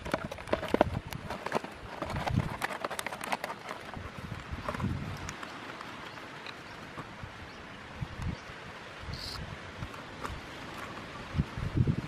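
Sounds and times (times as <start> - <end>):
plastic bottle and sticks clicking: 0.0 - 6.6.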